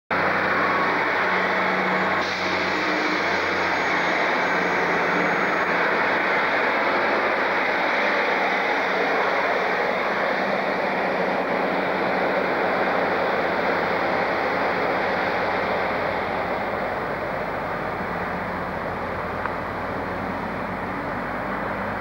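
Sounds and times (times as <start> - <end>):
diesel train rumbling: 0.1 - 22.0
low hum: 0.1 - 22.0.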